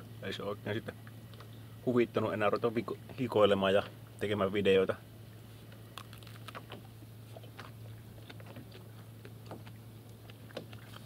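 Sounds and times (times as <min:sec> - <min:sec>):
steady low hum: 0:00.0 - 0:11.0
person chewing food: 0:05.9 - 0:06.6.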